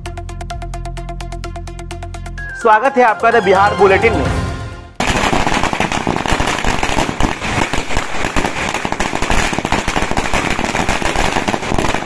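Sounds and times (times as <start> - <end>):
firecrackers banging: 3.3 - 12.0.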